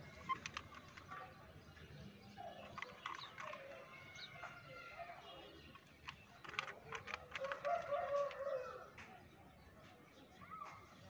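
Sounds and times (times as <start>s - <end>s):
plastic toy car clicks: 0.0s - 4.7s, 5.5s - 9.2s.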